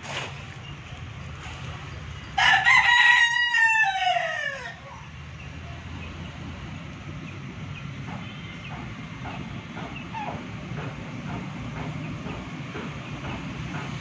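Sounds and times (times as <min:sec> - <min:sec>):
rooster crowing: 0:02.4 - 0:05.0.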